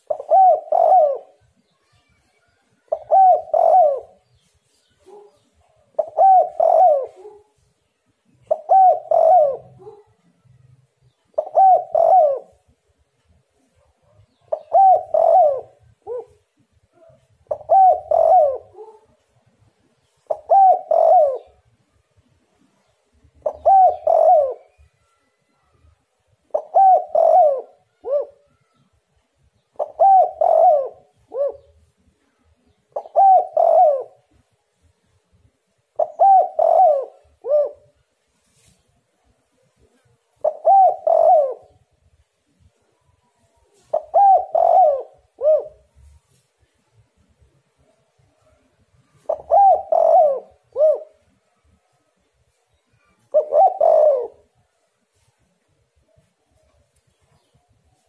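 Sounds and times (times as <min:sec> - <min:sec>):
dove cooing: 0:00.0 - 0:01.6, 0:02.7 - 0:07.6, 0:08.3 - 0:10.2, 0:11.1 - 0:12.8, 0:14.3 - 0:19.2, 0:20.0 - 0:21.7, 0:23.4 - 0:25.0, 0:26.4 - 0:28.8, 0:29.6 - 0:31.9, 0:32.6 - 0:34.4, 0:35.9 - 0:38.7, 0:39.5 - 0:42.0, 0:43.4 - 0:46.4, 0:47.8 - 0:52.2, 0:53.0 - 0:55.3.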